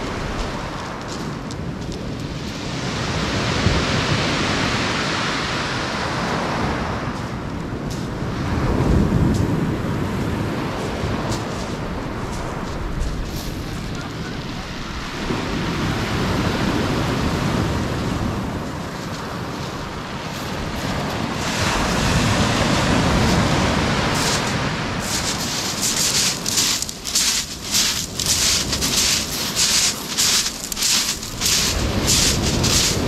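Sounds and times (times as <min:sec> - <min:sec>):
surf on shingle beach: 0:00.0 - 0:33.0
wind: 0:00.0 - 0:33.0
footsteps crunching on pebbles: 0:00.2 - 0:02.7, 0:11.3 - 0:14.1, 0:18.9 - 0:21.3, 0:24.1 - 0:33.0.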